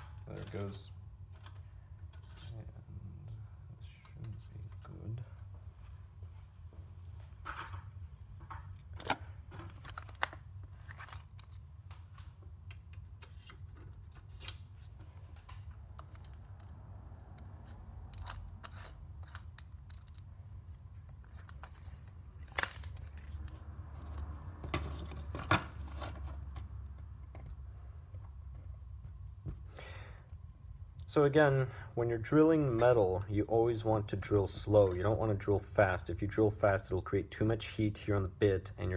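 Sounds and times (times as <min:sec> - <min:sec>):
metal part rattling on wooden bench: 0:17.3 - 0:20.6.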